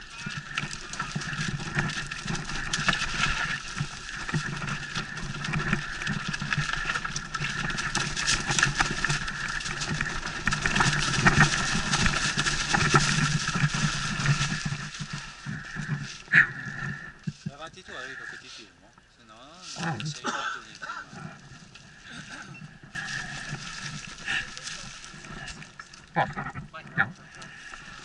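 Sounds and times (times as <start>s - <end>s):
bike knocks and rattles: 0.0s - 17.6s
bike tyres on dirt and leaves: 0.0s - 28.0s.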